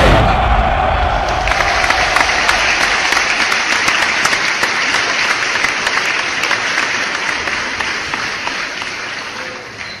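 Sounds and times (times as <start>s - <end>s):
audience clapping: 1.2s - 10.0s.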